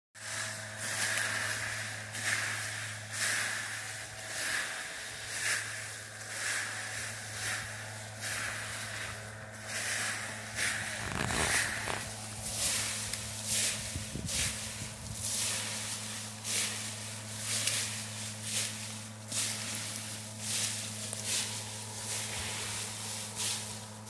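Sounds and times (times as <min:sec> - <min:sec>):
rake scraping through dry leaves: 0:00.2 - 0:24.0
steady low hum: 0:00.2 - 0:24.0.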